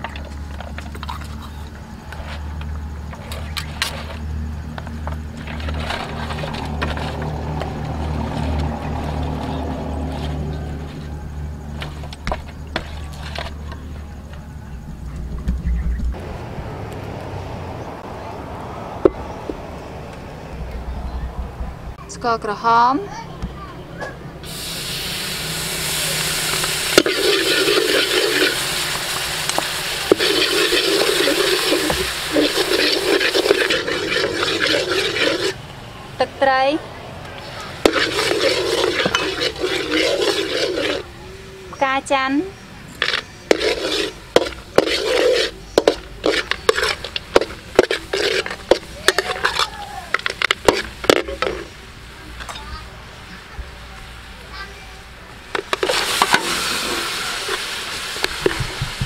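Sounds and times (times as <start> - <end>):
metal ladle scraping wok: 3.1 - 14.0, 25.3 - 35.6, 37.5 - 41.2, 42.9 - 51.8, 55.5 - 59.0
sauce sizzling in hot wok: 24.4 - 35.6, 37.8 - 41.1, 43.5 - 52.2, 55.7 - 59.0
ladle clacking against wok: 29.6 - 35.6, 37.8 - 41.1, 43.0 - 51.7.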